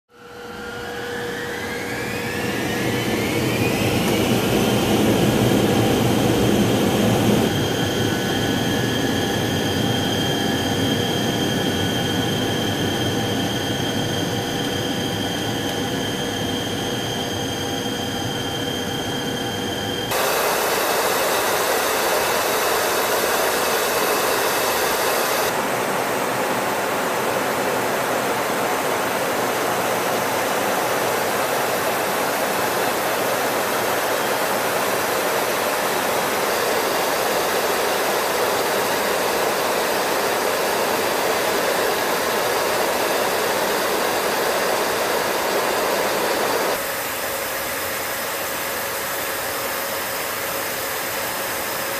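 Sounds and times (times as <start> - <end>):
jet engines whining: 0.2 - 51.9.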